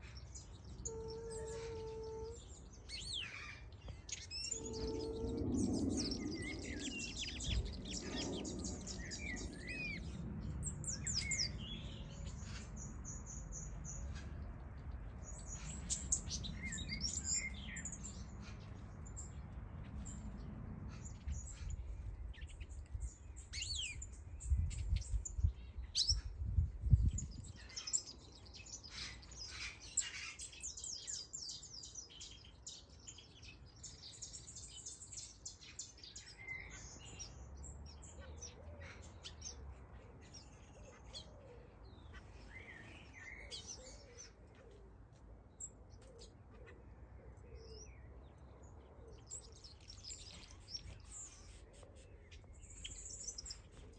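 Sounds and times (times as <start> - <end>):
finches chirping and singing: 0.0 - 44.5, 47.6 - 53.9
low rumble: 4.6 - 13.1.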